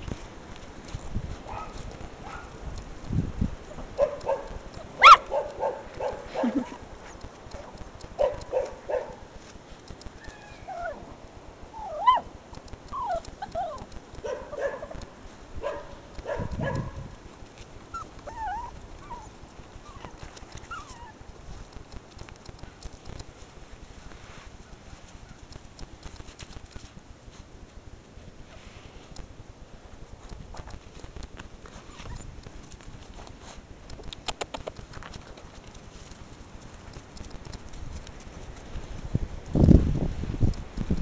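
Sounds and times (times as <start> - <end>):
puppies yipping and barking: 3.7 - 6.8, 11.7 - 12.3, 12.9 - 15.1, 17.9 - 21.2, 31.8 - 32.4
puppies whining: 10.2 - 11.1, 11.7 - 12.3, 12.9 - 14.0, 17.9 - 21.2, 31.8 - 32.4.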